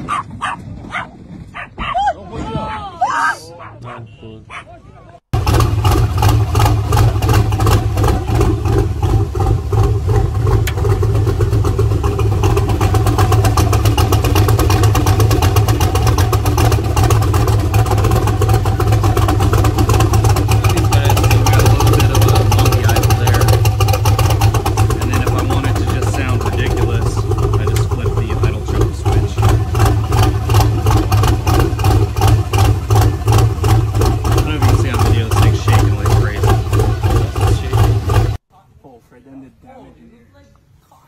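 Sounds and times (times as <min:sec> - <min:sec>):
loping engine idle: 0:05.4 - 0:38.4.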